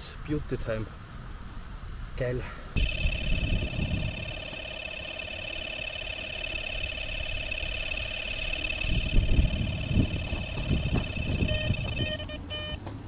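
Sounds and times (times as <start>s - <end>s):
electronic bite alarm tone: 2.8s - 12.8s.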